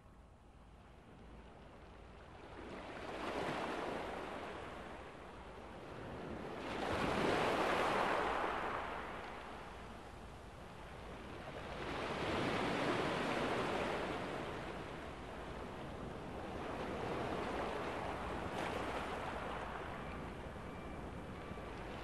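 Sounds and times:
sea waves washing on shore: 11.1s - 22.0s.

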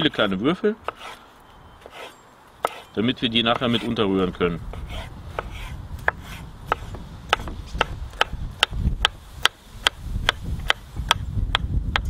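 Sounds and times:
knife chopping on wooden board: 0.8s - 1.2s, 1.8s - 2.9s, 4.7s - 12.0s.

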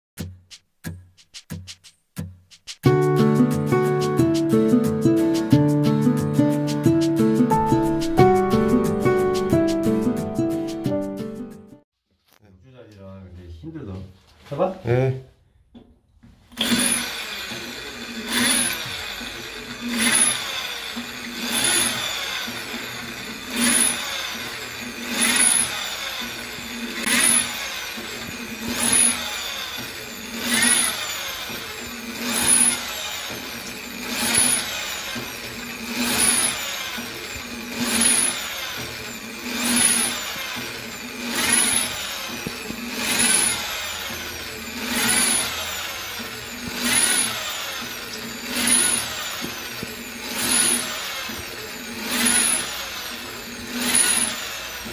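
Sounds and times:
electric drill boring into tile: 16.5s - 54.9s.

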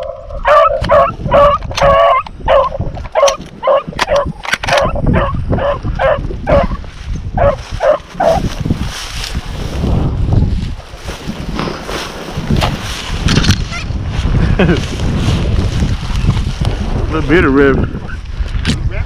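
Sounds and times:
hound barking rapidly: 0.0s - 6.8s, 7.4s - 8.4s.

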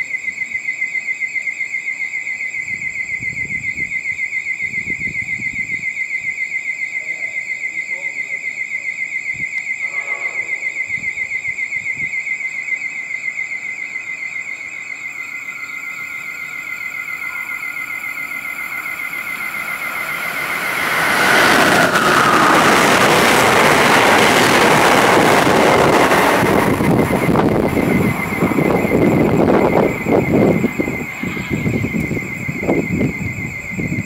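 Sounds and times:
pulsing warning tone: 9.7s - 34.0s
passenger train rushing past: 16.4s - 34.0s.

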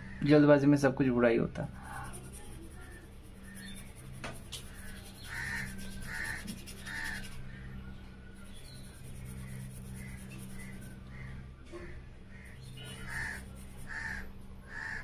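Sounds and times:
steady low hum: 0.0s - 15.0s
crow cawing: 5.3s - 7.3s, 12.3s - 15.0s.

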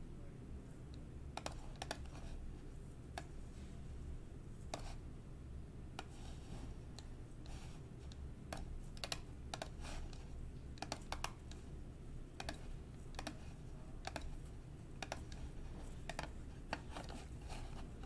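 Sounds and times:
faint low hum: 0.0s - 18.0s
computer keyboard keys clicking: 1.4s - 2.1s, 8.5s - 9.8s, 10.8s - 11.6s, 12.4s - 13.4s, 14.0s - 14.3s.

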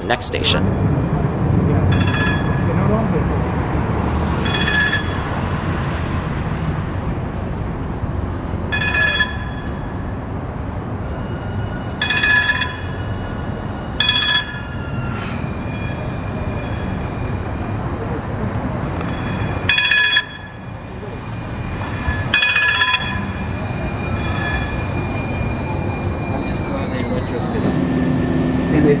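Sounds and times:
low rumble of train: 0.0s - 29.0s
train bell ringing: 1.8s - 3.1s, 4.4s - 5.4s, 8.7s - 10.2s, 11.2s - 29.0s.

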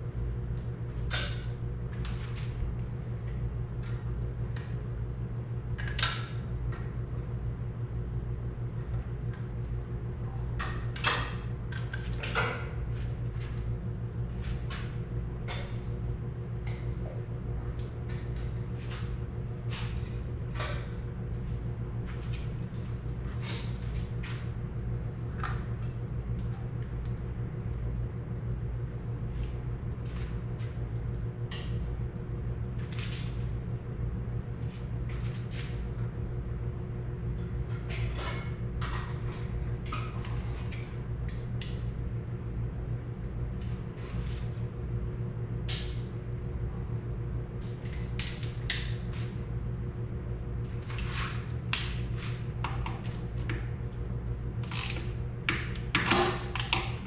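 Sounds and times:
fan humming: 0.0s - 57.0s
tools clicking on metal: 54.6s - 55.1s.

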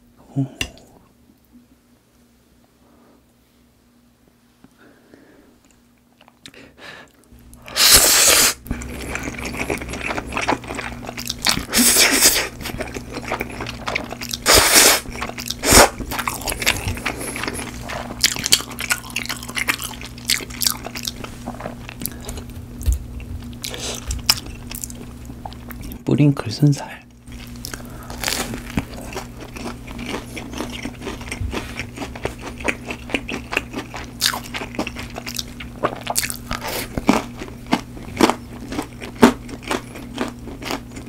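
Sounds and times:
wet chewing: 7.5s - 26.0s, 27.3s - 41.0s
loud slurps: 7.7s - 8.9s, 11.6s - 12.6s, 14.4s - 16.0s.

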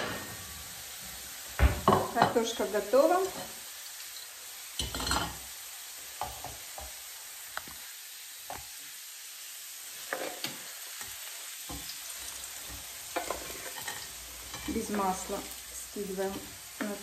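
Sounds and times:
potatoes sizzling in a frying pan: 0.0s - 17.0s
kitchenware knocking against pan: 1.6s - 2.4s.

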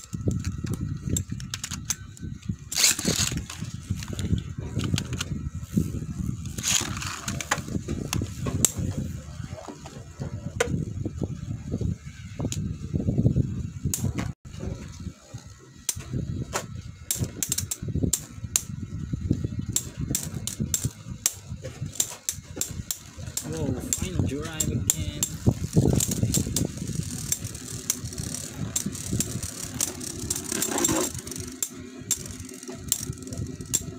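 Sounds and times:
spinning tops rumbling: 0.0s - 33.9s.

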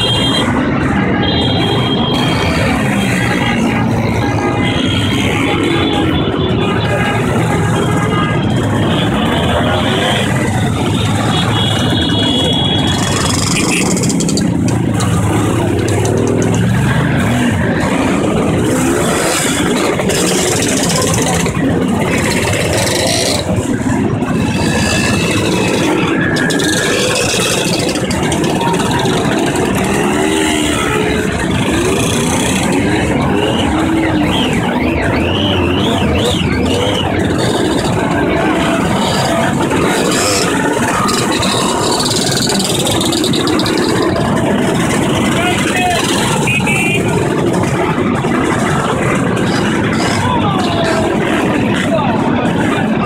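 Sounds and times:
scooter engines idling and revving: 0.0s - 53.0s.

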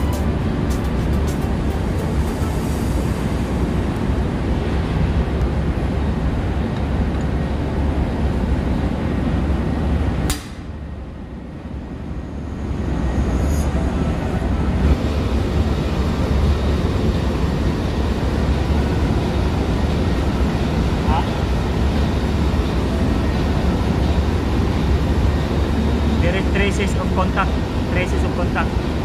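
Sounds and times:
ship engine room machinery drone: 0.0s - 29.0s
sharp click: 10.3s - 10.6s.

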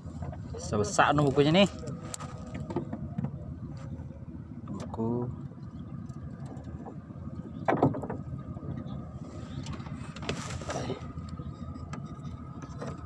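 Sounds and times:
choppy water around boat: 0.0s - 13.0s
steady wind: 0.0s - 13.0s.

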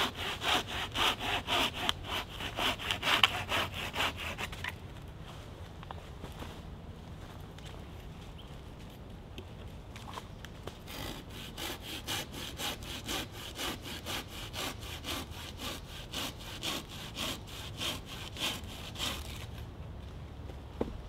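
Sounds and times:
hand saw cutting wood: 0.0s - 4.8s, 10.8s - 19.6s.

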